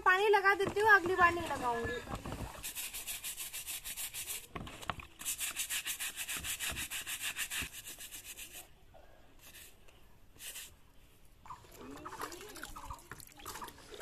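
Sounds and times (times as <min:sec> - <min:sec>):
brush scrubbing wet sandal: 0:00.4 - 0:08.7, 0:09.4 - 0:09.8, 0:10.4 - 0:10.8.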